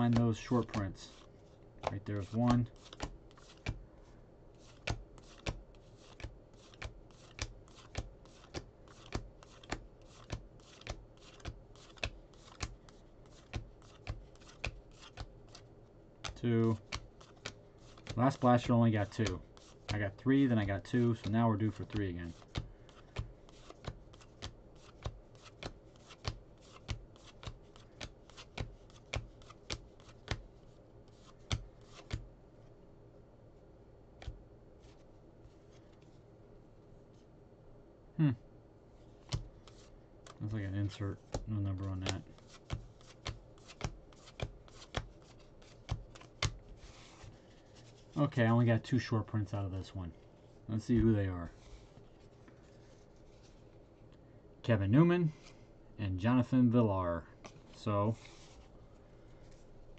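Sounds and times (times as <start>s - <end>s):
paper rustling: 4.6s - 15.6s.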